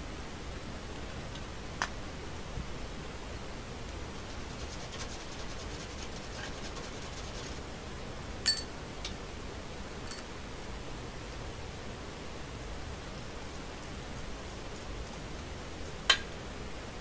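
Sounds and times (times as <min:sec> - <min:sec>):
flour rubbed through sieve: 0:04.0 - 0:07.8.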